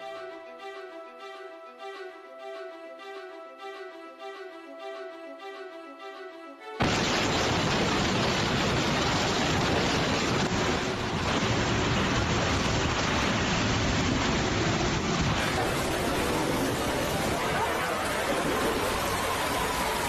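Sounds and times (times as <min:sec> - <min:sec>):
heavy rain: 0:06.8 - 0:20.0
strong wind: 0:06.9 - 0:20.0.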